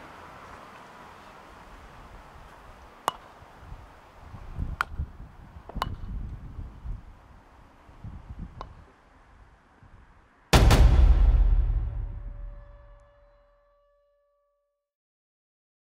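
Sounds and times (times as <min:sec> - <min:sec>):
croquet balls struck by mallets: 0:03.0 - 0:03.4, 0:05.7 - 0:06.2
low rumble: 0:10.6 - 0:13.3.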